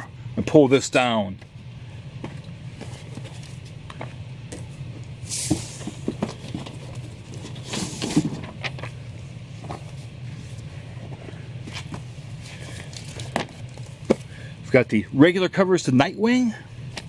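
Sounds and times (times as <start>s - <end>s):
steady low hum: 0.0s - 17.0s
paper and cardboard rustling: 2.2s - 4.7s, 5.4s - 14.3s.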